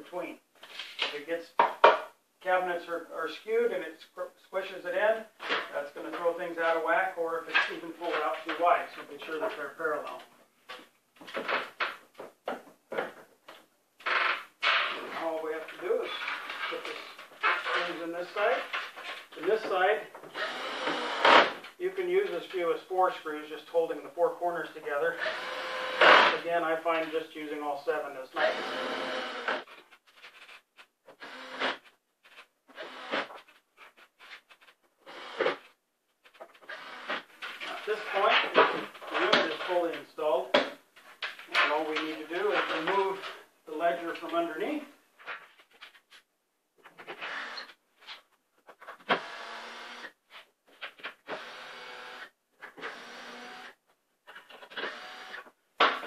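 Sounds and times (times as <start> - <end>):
cordless drill running: 20.4 - 21.5, 25.2 - 26.2, 28.5 - 29.6, 31.2 - 31.8, 32.8 - 33.3, 35.0 - 35.6, 36.7 - 37.2, 47.2 - 47.7, 49.1 - 50.1, 51.3 - 53.8, 54.8 - 55.4
scraping and rubbing: 33.3 - 34.8.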